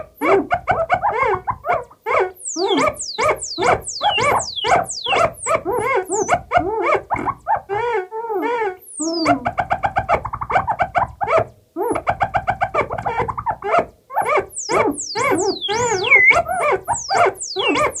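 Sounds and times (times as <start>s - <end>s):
synthesizer yelps and chirps: 0.0s - 18.0s
falling whistling synth sweeps: 2.4s - 5.6s, 14.6s - 18.0s
fast repeated synth blips: 2.4s - 6.3s, 14.5s - 18.0s.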